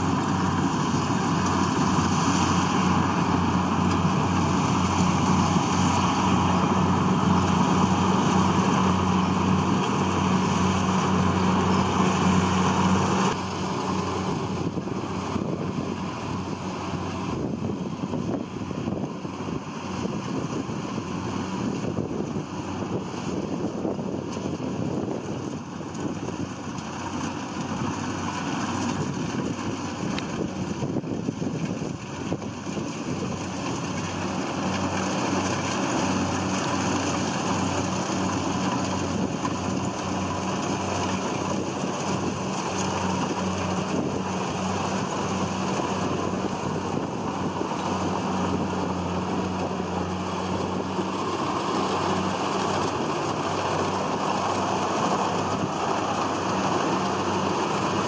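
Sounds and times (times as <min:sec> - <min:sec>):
combine harvester engine hum: 0:00.0 - 0:58.0
threshing machinery rushing: 0:00.0 - 0:58.0.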